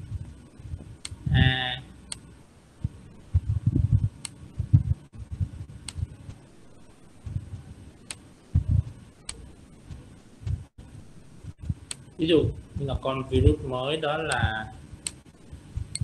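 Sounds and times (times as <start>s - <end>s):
mouse clicks: 5.8s - 6.1s.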